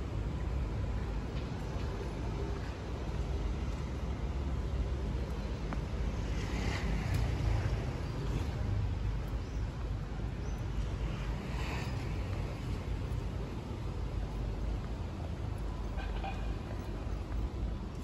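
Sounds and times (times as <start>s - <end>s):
traffic rumble: 0.0s - 18.0s.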